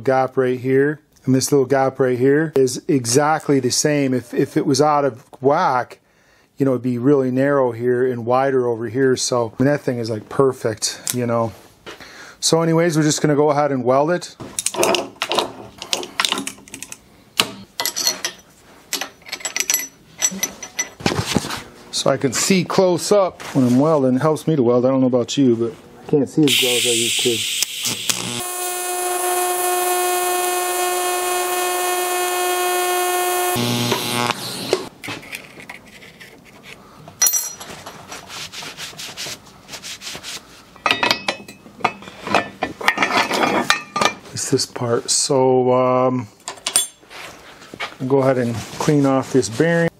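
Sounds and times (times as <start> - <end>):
metal tools clinking on workbench: 17.8 - 21.0, 37.2 - 37.7.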